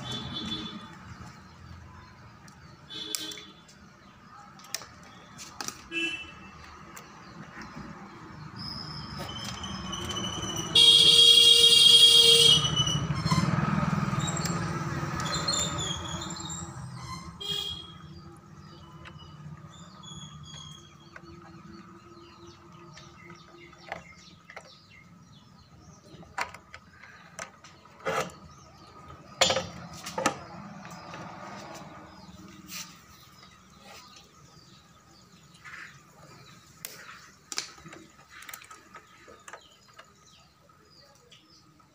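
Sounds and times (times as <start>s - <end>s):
birds chirping: 0.0s - 41.9s
horn toot: 10.6s - 14.0s
passing vehicle rumble: 12.4s - 17.4s, 27.2s - 37.4s.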